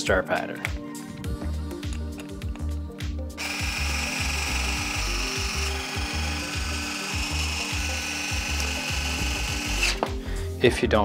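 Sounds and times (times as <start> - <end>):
background music with beat: 0.0 - 11.0
cordless drill motor whining: 3.4 - 10.1.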